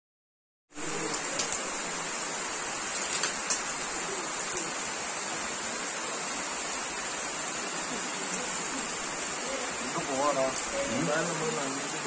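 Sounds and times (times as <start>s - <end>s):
heavy rain on leaves and ground: 0.7s - 12.0s
raindrop taps: 2.9s - 3.7s.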